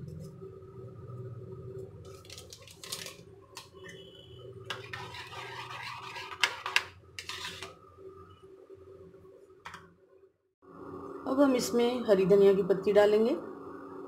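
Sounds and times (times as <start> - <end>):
metal spoon scraping a plate: 4.6 - 7.8.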